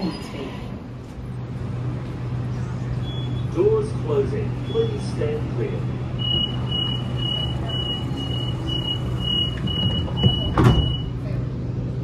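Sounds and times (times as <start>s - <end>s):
low hum of stationary train: 0.0s - 12.0s
short high warning beeps: 6.2s - 11.2s
sliding doors shutting with thud: 9.2s - 11.0s.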